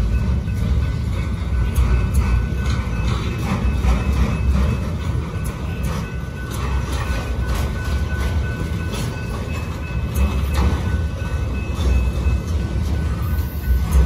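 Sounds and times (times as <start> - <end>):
train wheels rumbling on rail: 0.0 - 14.0.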